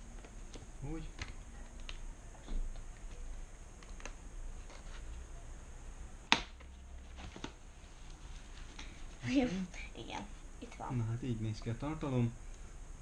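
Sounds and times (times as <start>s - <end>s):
cardboard sharp snap: 6.3s - 6.7s.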